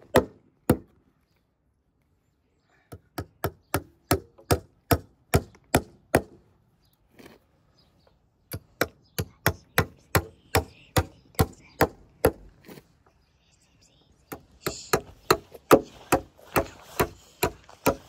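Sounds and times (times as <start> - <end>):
hammer blows on wooden fence: 2.9 - 6.4, 14.3 - 18.0.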